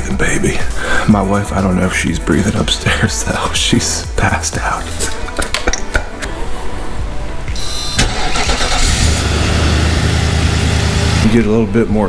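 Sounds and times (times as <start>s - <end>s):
vehicle engine starting and rumbling: 7.6s - 11.7s.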